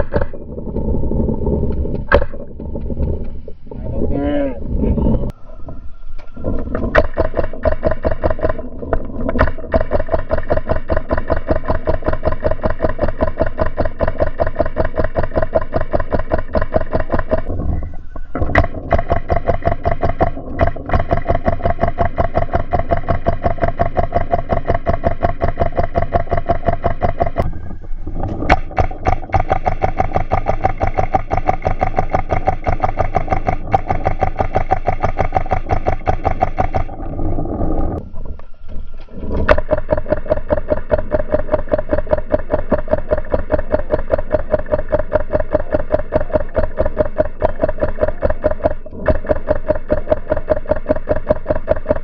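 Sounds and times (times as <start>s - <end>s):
steady hum: 0.0s - 52.0s
paintball markers firing: 7.0s - 8.6s, 9.4s - 17.5s, 28.5s - 36.9s, 39.5s - 52.0s.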